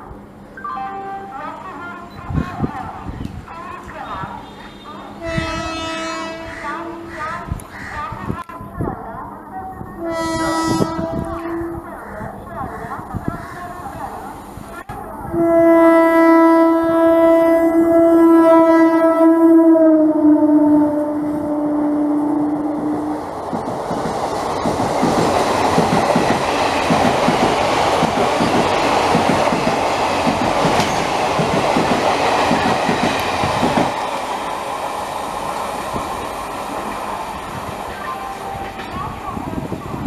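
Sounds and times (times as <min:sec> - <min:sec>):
locomotive air horn: 0:04.4 - 0:07.0, 0:10.0 - 0:11.8, 0:15.3 - 0:23.2
train wheels clattering on rails: 0:23.4 - 0:34.5.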